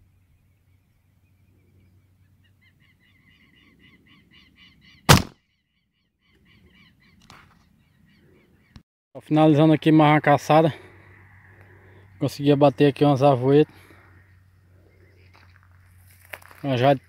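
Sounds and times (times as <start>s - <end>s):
air rifle shot: 5.1s - 5.4s.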